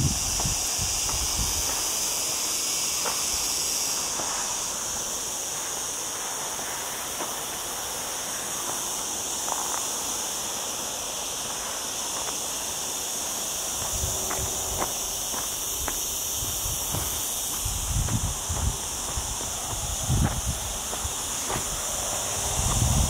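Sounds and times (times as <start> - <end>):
cicadas singing: 0.0 - 23.0
footsteps on gravel: 0.1 - 2.1, 9.4 - 9.9, 13.3 - 23.0.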